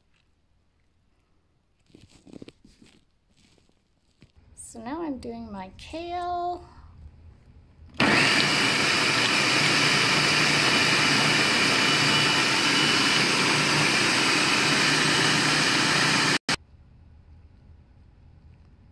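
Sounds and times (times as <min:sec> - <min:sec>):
food processor motor whine: 0:08.0 - 0:16.6.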